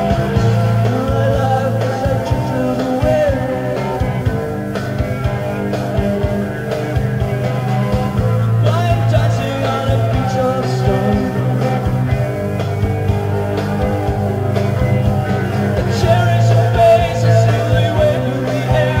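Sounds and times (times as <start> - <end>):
man singing: 0.0 - 4.3, 8.6 - 12.2, 15.8 - 19.0
live rock band playing: 0.0 - 19.0.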